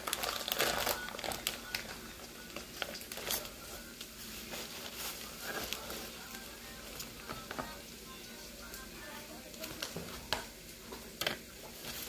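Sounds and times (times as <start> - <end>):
plastic package crinkling: 0.0 - 7.7.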